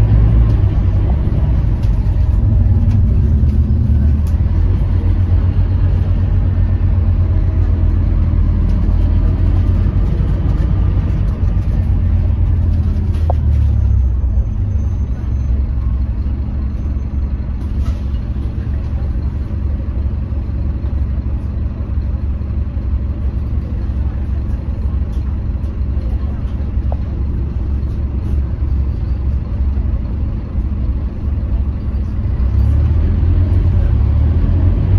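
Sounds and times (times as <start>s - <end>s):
bus engine rumble from inside: 0.0s - 34.9s.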